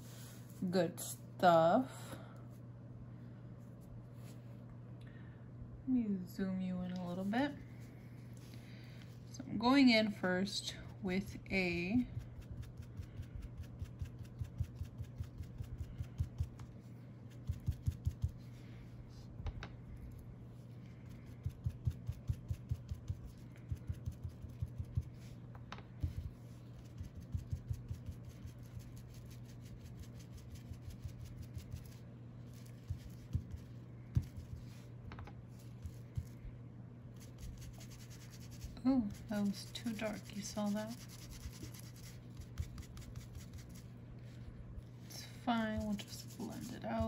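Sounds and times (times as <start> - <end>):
steady low hum: 0.0 - 47.0
foam tool tapping and scuffing paper: 26.0 - 28.4, 30.0 - 34.8.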